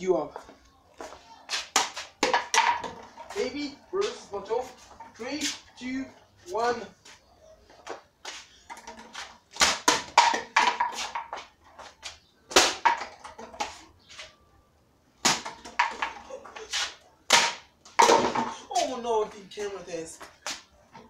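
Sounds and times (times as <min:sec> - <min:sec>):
objects knocking and clattering: 0:01.8 - 0:03.4, 0:08.6 - 0:11.9, 0:12.6 - 0:14.0, 0:15.3 - 0:16.6, 0:17.3 - 0:18.7.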